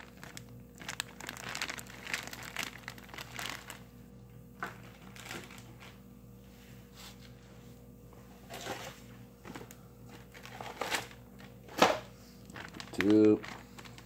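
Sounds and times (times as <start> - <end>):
plastic bag crinkling: 0.0 - 4.0, 4.6 - 6.0, 9.5 - 14.0.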